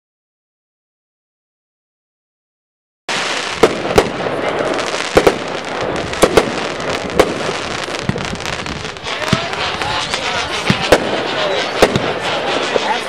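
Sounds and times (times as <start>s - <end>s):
firework bangs: 3.1s - 13.0s
firework crackling: 3.1s - 13.0s.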